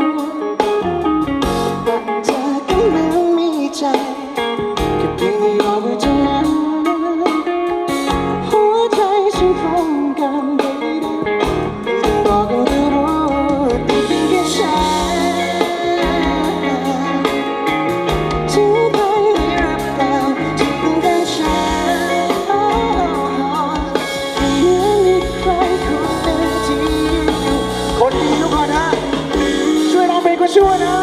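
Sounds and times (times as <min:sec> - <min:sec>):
live band playing: 0:00.0 - 0:31.0
lead vocal singing: 0:01.5 - 0:31.0.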